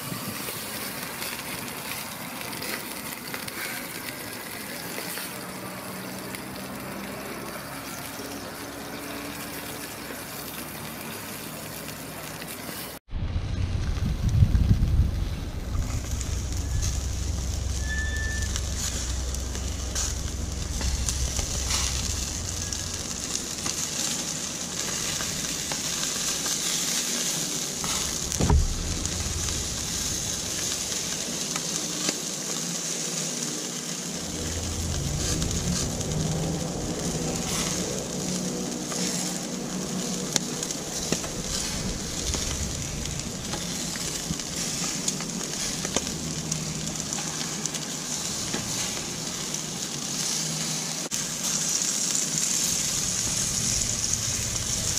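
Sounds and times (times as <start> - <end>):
meat sizzling on a grill: 0.0 - 13.0, 13.8 - 54.9
wind rumble on microphone: 13.1 - 26.2, 27.7 - 31.3, 34.2 - 49.1, 52.6 - 54.9.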